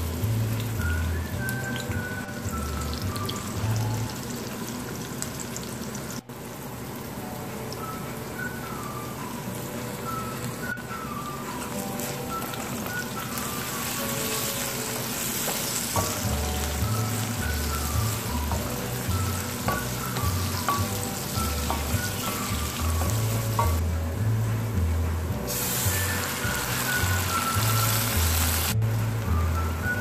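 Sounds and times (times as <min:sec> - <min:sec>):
background music with bass: 0:00.0 - 0:04.1, 0:16.0 - 0:30.0
onions sizzling in hot oil: 0:00.0 - 0:10.7, 0:11.6 - 0:23.9, 0:25.4 - 0:30.0.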